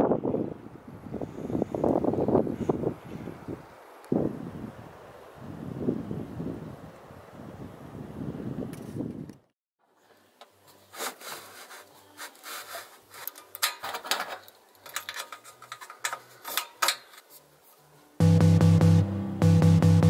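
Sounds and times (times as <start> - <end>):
scraping and rubbing strokes: 10.6 - 13.8, 15.0 - 18.0
electronic music with heavy bass: 18.2 - 20.0.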